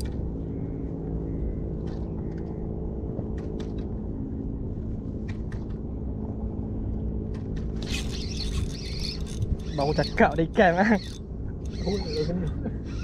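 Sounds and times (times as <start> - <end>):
motor humming: 7.8 - 13.0.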